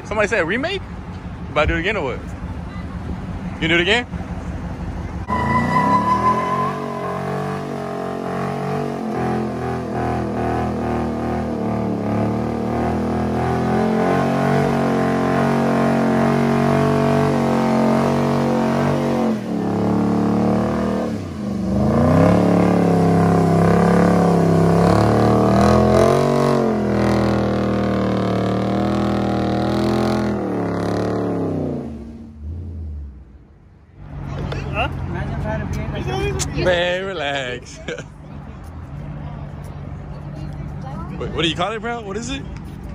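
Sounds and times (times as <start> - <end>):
car engine at high revs: 0.7 - 33.3.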